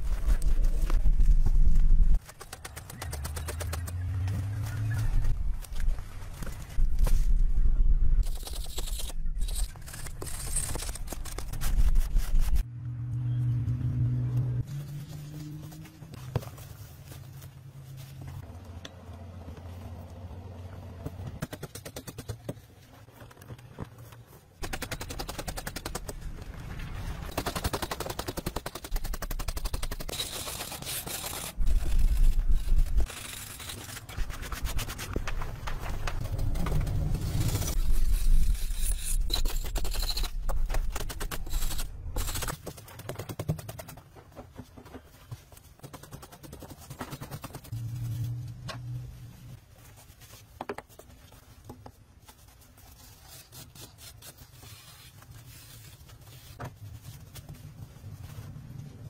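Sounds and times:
crumbling earth: 24.6 - 42.4.

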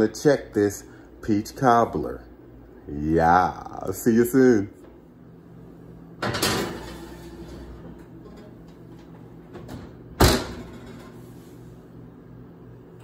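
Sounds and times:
oven door shutting: 6.2 - 11.3
glass dish scraping on oven rack: 6.3 - 7.8.

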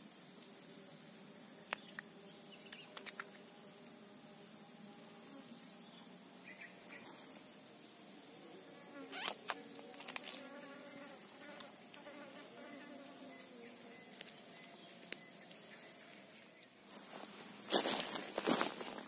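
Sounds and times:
insects droning: 0.0 - 19.0
footsteps rustling through dry grass: 16.2 - 19.0.

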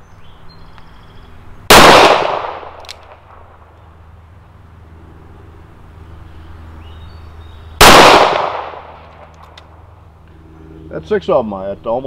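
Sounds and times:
revolver gunshot with echo: 1.7 - 3.4, 7.8 - 9.0.

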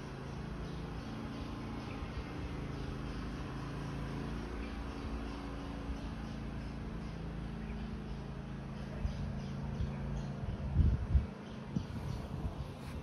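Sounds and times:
steady low rumble: 8.8 - 13.0.

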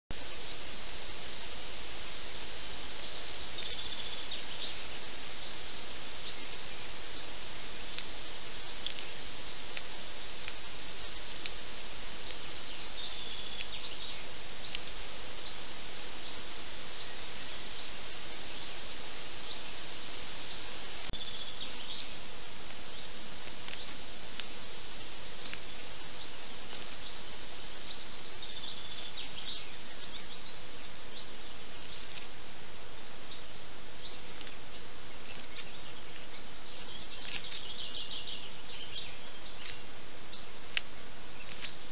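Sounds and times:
steady outdoor hiss: 0.1 - 41.9.

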